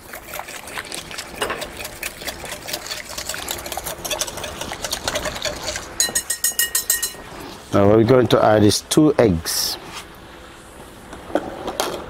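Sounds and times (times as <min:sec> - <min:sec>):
whisk clicking against glass bowl: 0:03.2 - 0:07.2.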